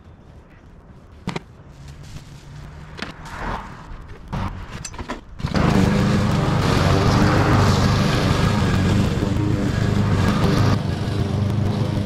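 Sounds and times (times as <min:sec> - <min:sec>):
knocks and rustles: 0:01.2 - 0:05.4
lawn mower engine running: 0:04.4 - 0:12.0.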